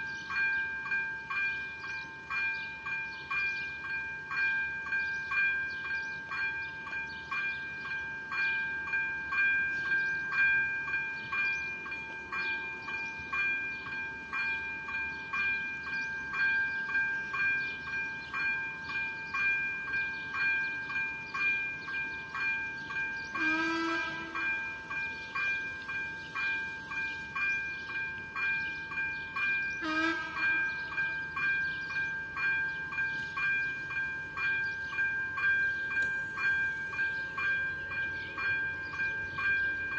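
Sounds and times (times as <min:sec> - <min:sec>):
level crossing warning bell: 0:00.0 - 0:39.9
train horn toots: 0:23.4 - 0:24.6, 0:29.8 - 0:30.8.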